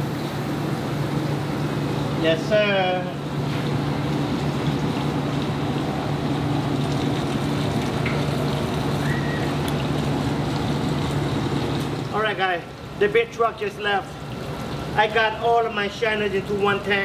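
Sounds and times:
water churning in a tank: 0.0 - 17.0
motor hum: 3.1 - 13.0.

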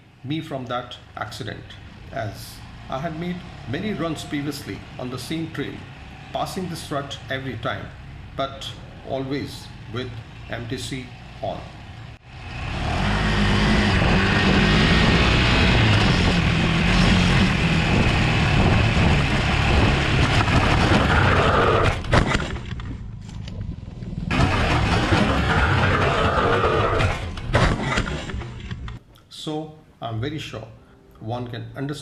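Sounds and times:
motorcycle engine revving: 1.7 - 29.0
wind rushing over microphone: 12.6 - 22.1.

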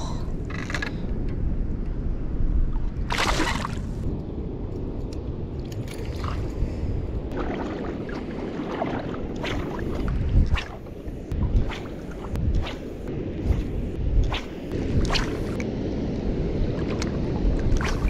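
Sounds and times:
wind rumbling on microphone: 0.0 - 18.0
shallow water sloshing: 2.7 - 4.0, 7.3 - 15.6.

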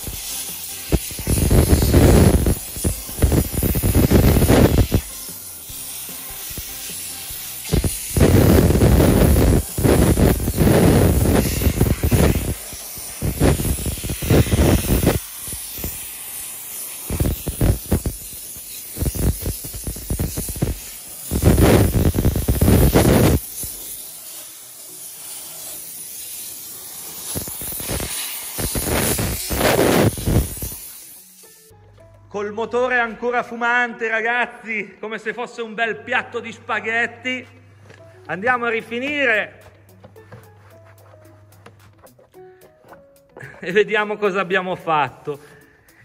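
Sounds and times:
steam lance hissing blasts: 0.0 - 31.7.

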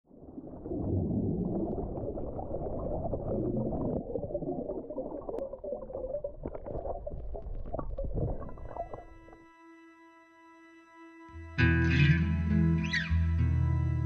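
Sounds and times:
underwater bubbles churning: 0.1 - 9.4.

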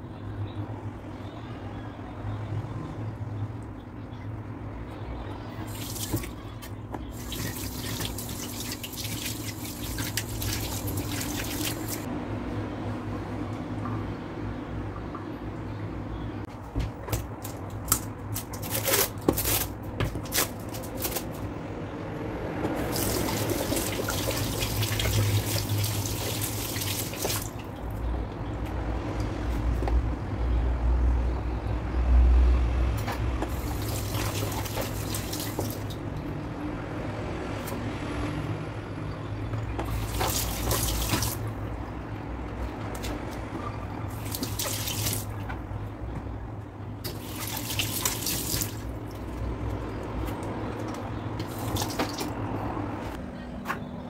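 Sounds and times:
water splashing: 5.7 - 12.1, 22.8 - 27.9, 33.5 - 36.0, 39.6 - 41.7, 43.0 - 45.5, 47.0 - 49.4, 51.3 - 52.6.

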